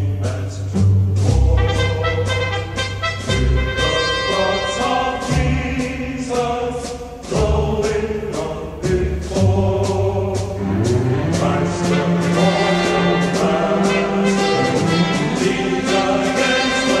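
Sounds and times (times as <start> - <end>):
bass line: 0.0 - 16.6
choral singing: 0.0 - 17.0
steady beat: 0.2 - 17.0.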